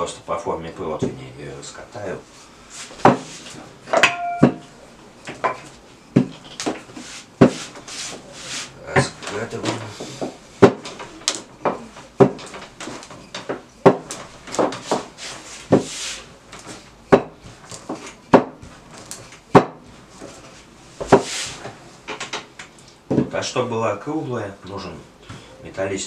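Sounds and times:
rolling pin rubbing over dough: 2.2 - 3.7, 6.6 - 10.7, 14.1 - 18.1, 19.9 - 21.8
rolling pin knocking on table: 11.6 - 12.5, 13.4 - 15.1, 17.1 - 18.7, 19.5 - 19.9.

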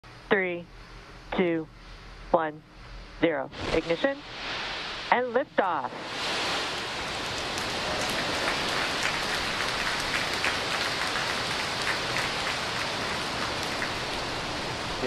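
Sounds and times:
rocket engines rushing and crackling: 3.5 - 15.0.

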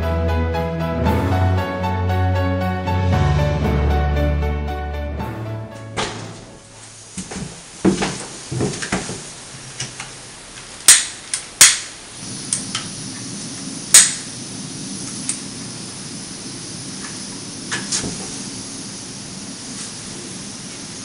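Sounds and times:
gas burners hissing: 5.6 - 21.0
burner igniter clicks: 9.8 - 14.4, 15.0 - 15.5.

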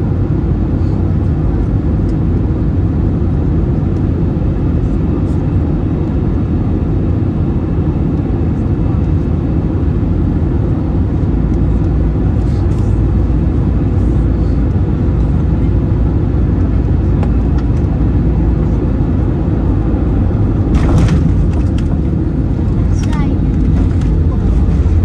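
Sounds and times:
airliner cabin rumble: 0.0 - 25.0
brief rattle: 20.7 - 22.0.

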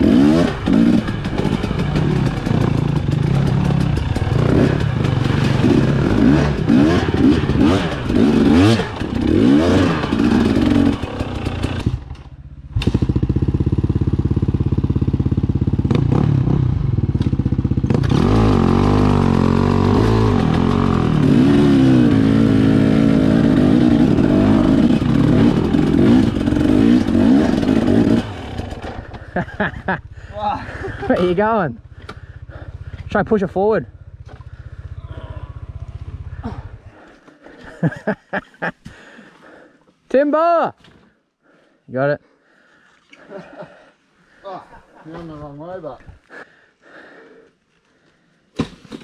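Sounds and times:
dirt bike engine revving: 0.0 - 37.1.

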